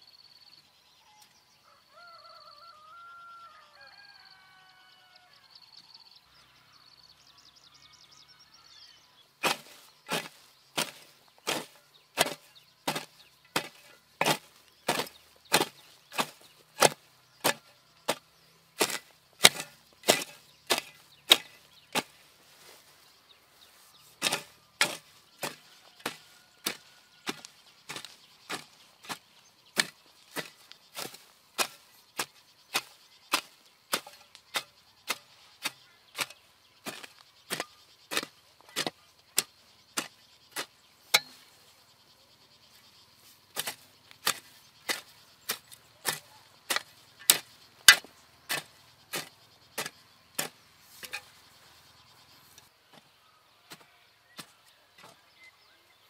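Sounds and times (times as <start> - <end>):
hoe chopping into soil: 9.4 - 22.8, 24.0 - 41.6, 43.5 - 51.4.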